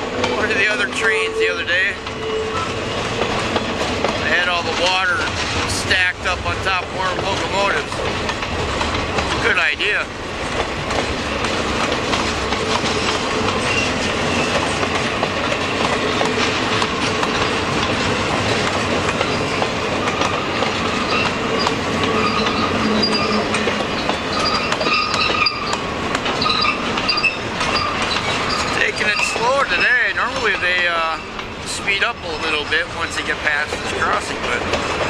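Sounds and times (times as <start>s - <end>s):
wheels squealing on curve: 0.0s - 4.5s, 12.7s - 14.8s, 19.2s - 31.4s
train wheels clattering on rails: 0.0s - 35.0s.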